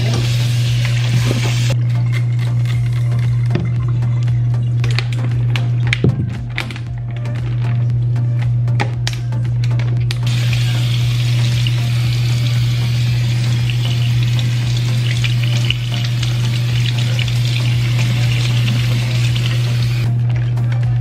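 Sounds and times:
water splashing into a steel sink: 10.3 - 20.1.

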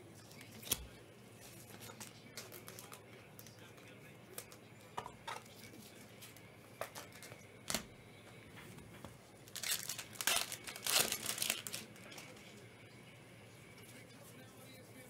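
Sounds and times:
foil wrappers crinkling and tearing: 1.6 - 3.6, 9.4 - 12.4.

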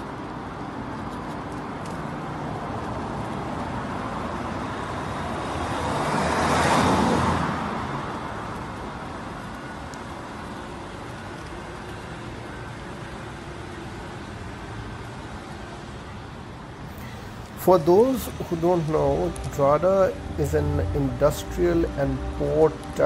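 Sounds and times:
street traffic: 0.0 - 23.0
car passing close by: 5.4 - 8.1.

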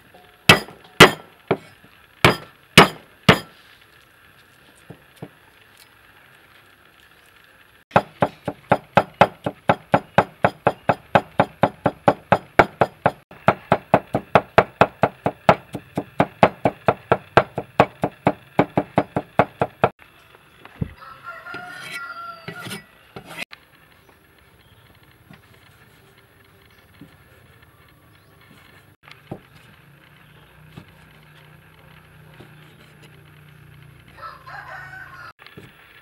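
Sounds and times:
cleaver chopping on wooden block: 0.5 - 1.7, 2.3 - 3.5, 7.9 - 19.9
rooster crowing: 20.9 - 23.4, 34.1 - 35.4.

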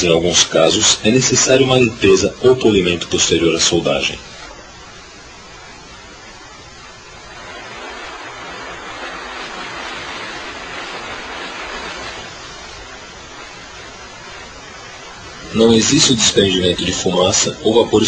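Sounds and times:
steady background hiss: 0.0 - 18.0.

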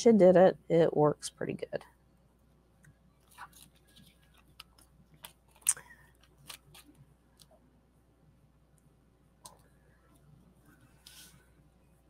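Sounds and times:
paper rustling: 3.2 - 7.0.

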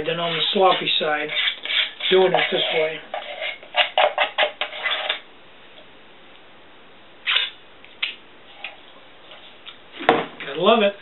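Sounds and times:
batter scraped from metal cup: 0.2 - 5.2.

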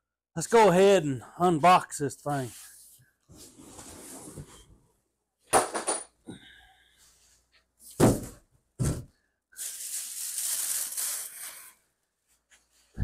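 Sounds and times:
cardboard box thuds: 8.0 - 9.1
plastic wrapping rustling: 9.6 - 11.8.

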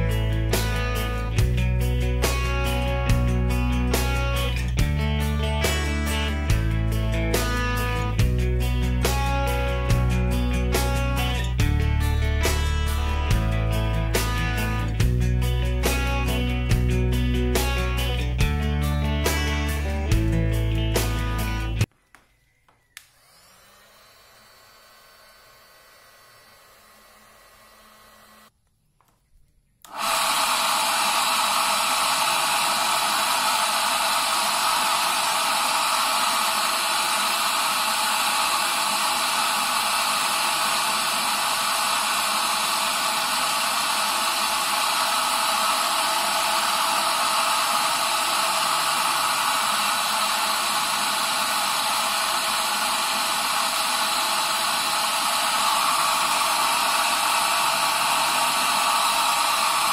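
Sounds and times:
heat gun blowing air: 23.0 - 28.5, 29.9 - 59.9.

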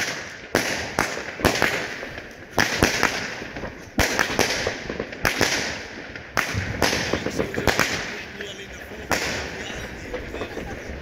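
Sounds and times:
firework bangs: 0.0 - 11.0
firework hiss and crackle: 0.0 - 11.0.

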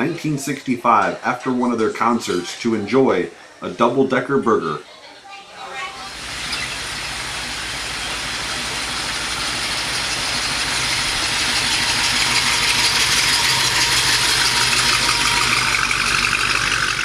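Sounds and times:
car engine idling passing by: 6.1 - 17.0.

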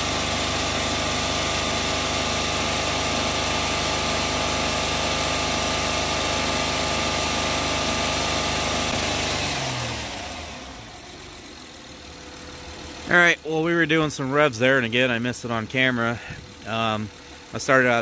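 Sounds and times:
car engine revving: 6.7 - 14.9.

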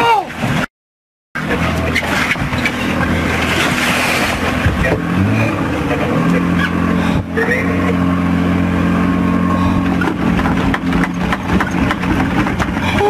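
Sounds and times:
boat engine running: 0.0 - 0.7, 1.4 - 13.0
wind: 0.0 - 0.7, 1.4 - 13.0
water wash: 1.4 - 13.0.

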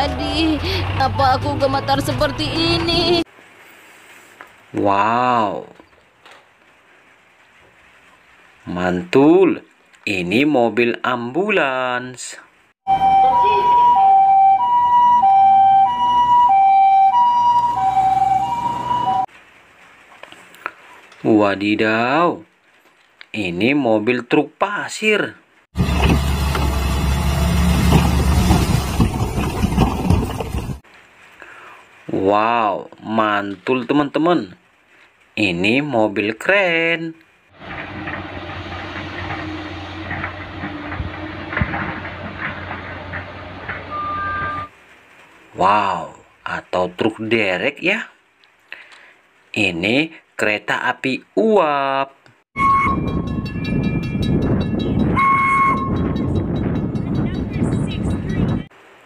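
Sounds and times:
diesel engine running: 0.0 - 3.2, 25.8 - 30.8, 37.6 - 44.7
low vehicle hum: 0.0 - 3.4, 25.8 - 30.8, 37.5 - 44.8
two-tone ambulance siren: 12.9 - 19.3, 43.9 - 44.7, 52.6 - 53.5, 55.1 - 56.1.

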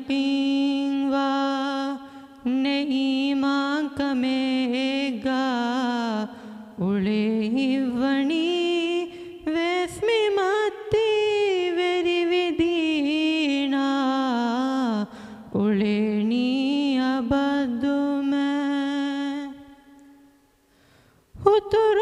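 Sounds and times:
boy singing unaccompanied: 0.0 - 15.0, 15.6 - 19.7, 21.4 - 22.0
singer taking a breath: 2.0 - 2.4, 9.1 - 9.4, 15.1 - 15.5, 20.6 - 21.3.

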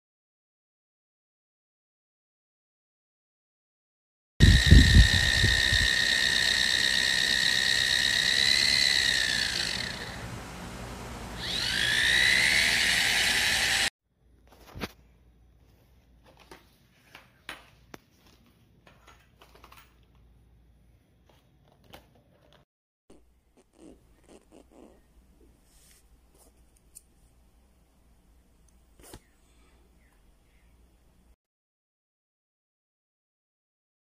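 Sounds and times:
small electric motor whining: 4.4 - 13.9.

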